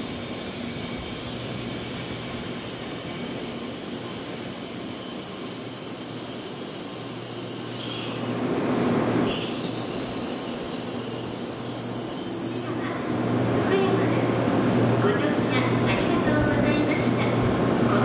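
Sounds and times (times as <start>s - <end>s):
train braking to a stop: 0.0s - 13.3s.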